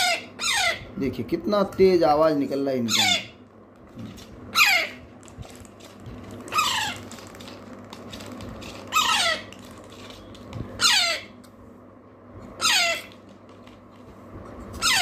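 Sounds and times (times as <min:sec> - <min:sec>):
parrot chicks begging calls: 0:00.0 - 0:01.0, 0:02.8 - 0:03.4, 0:04.5 - 0:05.1, 0:06.4 - 0:07.3, 0:08.8 - 0:09.6, 0:10.8 - 0:11.4, 0:12.6 - 0:13.2, 0:14.7 - 0:15.0.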